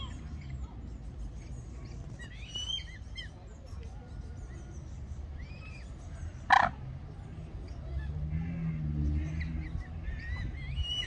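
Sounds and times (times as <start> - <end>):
faint songbird chirps: 0.0 - 11.0.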